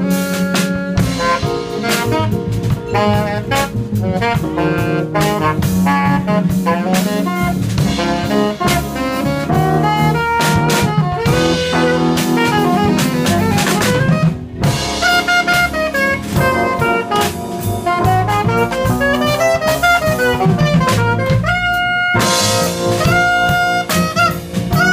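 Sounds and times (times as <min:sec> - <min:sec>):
alto saxophone solo: 0:00.0 - 0:24.9
drum kit with cymbals: 0:00.0 - 0:24.9
sustained low accompaniment: 0:01.1 - 0:06.6.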